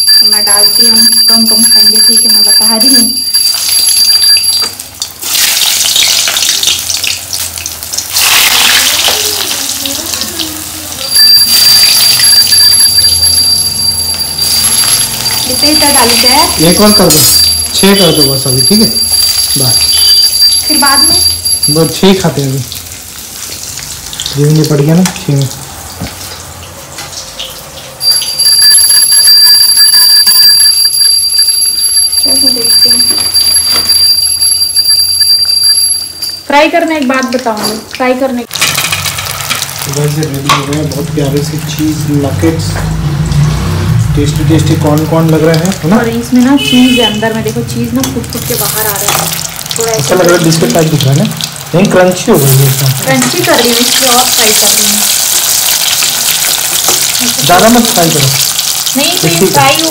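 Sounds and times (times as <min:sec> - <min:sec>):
high-pitched bell ringing: 0:00.0 - 0:04.8, 0:11.0 - 0:22.2, 0:28.0 - 0:36.7
food sizzling in hot oil: 0:00.0 - 0:35.2, 0:36.1 - 0:59.9.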